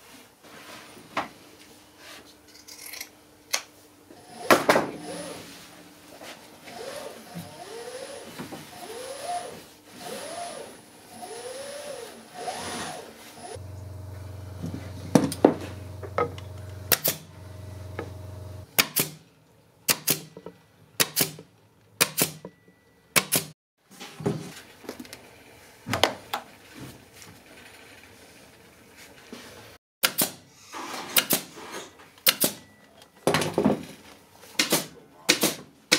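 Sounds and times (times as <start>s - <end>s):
sharp clicks and knocks: 14.6s - 17.3s.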